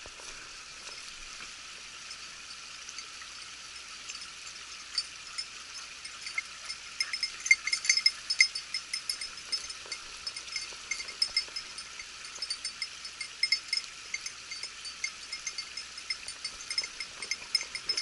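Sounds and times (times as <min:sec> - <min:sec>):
dog collar bell ringing: 0:04.9 - 0:18.0.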